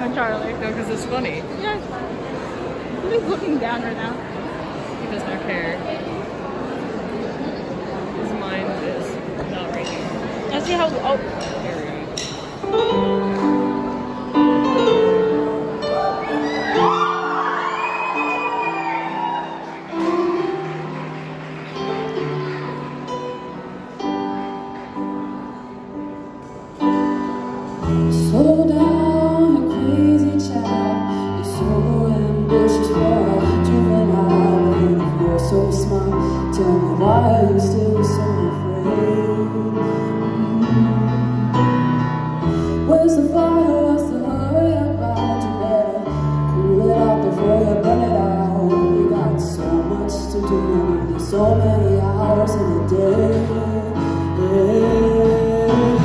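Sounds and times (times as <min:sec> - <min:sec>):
live band playing: 0:08.4 - 0:56.0
woman singing: 0:28.1 - 0:41.6, 0:42.8 - 0:56.0.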